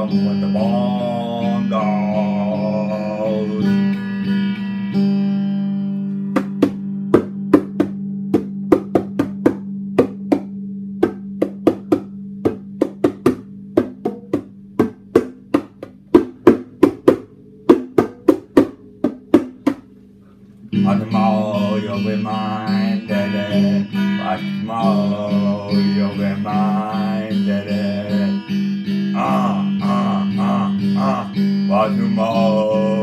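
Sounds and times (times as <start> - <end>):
electric guitar chord strummed: 0.0 - 8.3, 20.7 - 33.0
percussive hits on guitar strings: 6.2 - 19.9.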